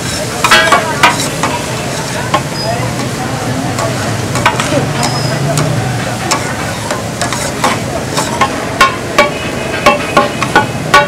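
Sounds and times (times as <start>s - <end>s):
metal spatula scraping griddle: 0.0s - 3.2s, 3.8s - 11.0s
chicken sizzling on griddle: 0.0s - 11.0s.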